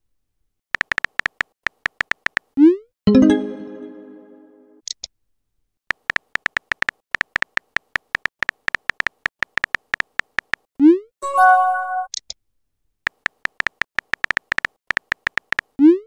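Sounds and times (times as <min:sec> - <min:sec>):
typing clicks: 0:00.8 - 0:02.5, 0:05.9 - 0:10.7, 0:13.1 - 0:15.8
notification chime: 0:03.1 - 0:04.6, 0:11.2 - 0:12.1.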